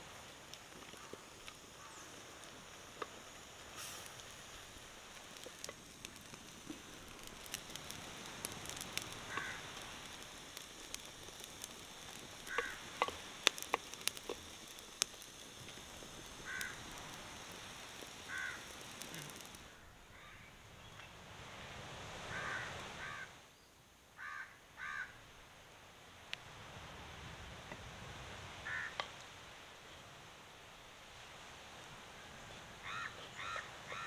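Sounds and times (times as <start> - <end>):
food bubbling and sizzling in pot: 0.0 - 19.8
fire crackling and popping: 0.0 - 19.9, 26.2 - 30.0
crow cawing: 9.3 - 9.7, 12.4 - 12.9, 16.4 - 16.8, 18.3 - 19.4, 22.3 - 23.3, 24.2 - 25.2, 28.6 - 29.0, 32.8 - 34.0.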